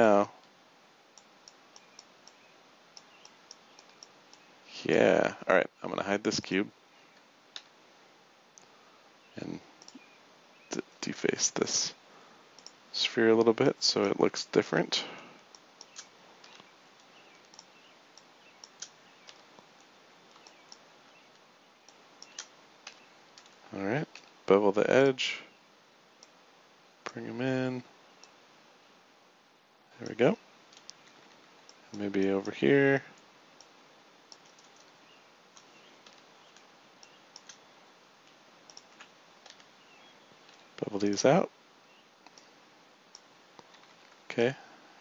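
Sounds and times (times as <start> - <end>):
low steady hiss: 0.0 - 45.0
keyboard and mouse clicks: 3.0 - 4.4, 9.8 - 10.0, 12.6 - 12.8, 15.5 - 24.3, 34.3 - 35.0, 35.6 - 37.6, 38.3 - 39.7, 42.2 - 42.5
mouse and keyboard clicks: 15.5 - 19.7, 20.3 - 20.8, 21.9 - 24.3.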